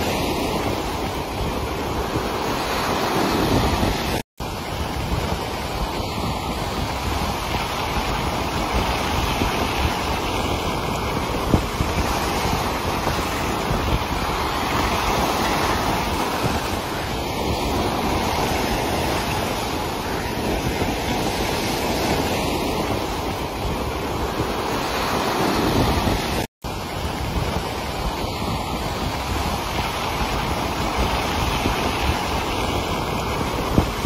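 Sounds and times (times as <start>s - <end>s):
surf breaking on rocky shore: 0.0s - 34.0s.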